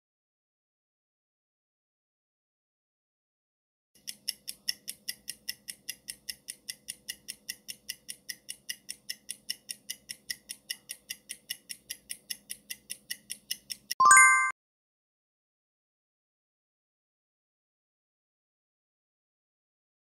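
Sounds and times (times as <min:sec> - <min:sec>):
fast clock-like ticking: 0:04.0 - 0:14.0.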